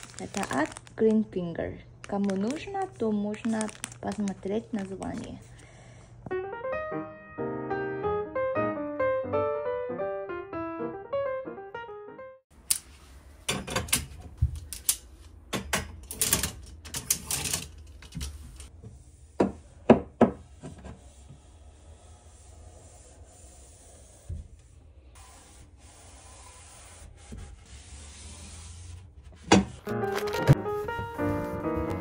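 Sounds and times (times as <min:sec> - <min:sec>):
piano music: 0:06.3 - 0:12.4, 0:29.8 - 0:32.0
wet wipe scrubbing wardrobe: 0:20.4 - 0:32.0.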